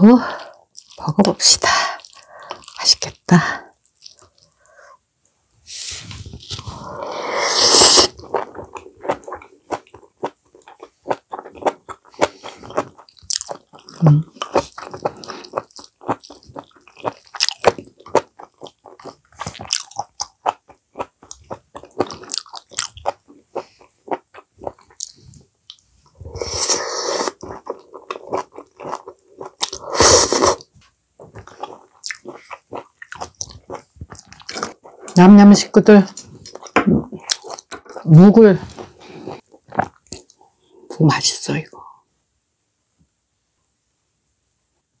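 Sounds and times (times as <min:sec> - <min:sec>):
close-miked chewing: 0:08.0 - 0:26.4, 0:27.2 - 0:40.4.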